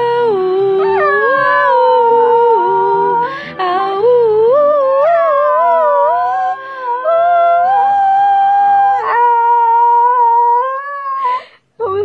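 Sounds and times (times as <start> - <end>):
person humming: 0.0 - 12.0
small dog howling: 0.8 - 3.2, 5.0 - 11.2.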